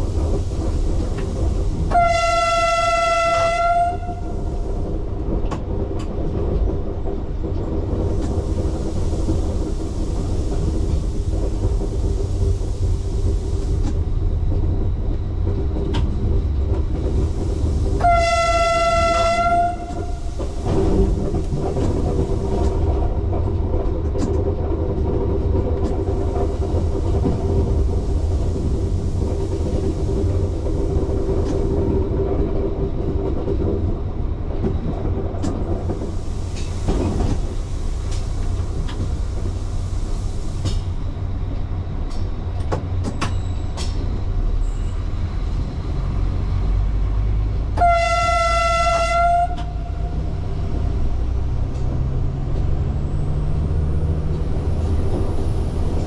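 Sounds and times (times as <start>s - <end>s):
diesel railcar rumbling: 0.0s - 56.0s
train horn: 1.9s - 4.5s, 18.0s - 20.3s, 47.8s - 50.2s.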